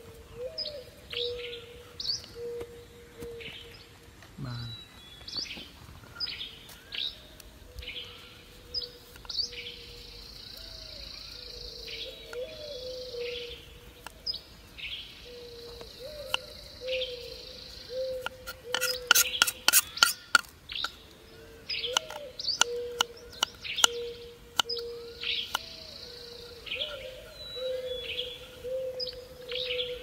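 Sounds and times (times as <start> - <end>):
birds chirping: 0.0 - 30.0
knife cutting on wooden board: 18.3 - 20.5.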